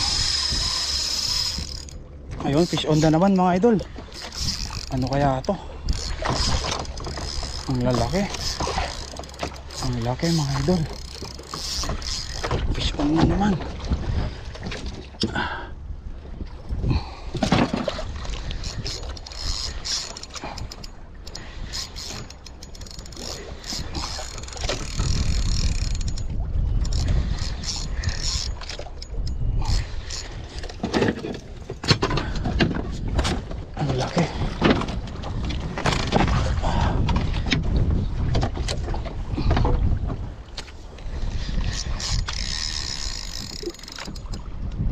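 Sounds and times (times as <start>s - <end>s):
knocks and creaks in boat: 0.0s - 44.9s
wind and water rushing: 0.0s - 44.9s.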